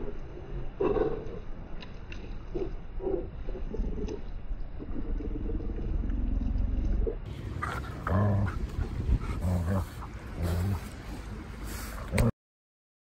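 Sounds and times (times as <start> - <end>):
low rumbling noise: 0.0 - 12.3
dog low-pitched vocalizations: 2.5 - 12.3.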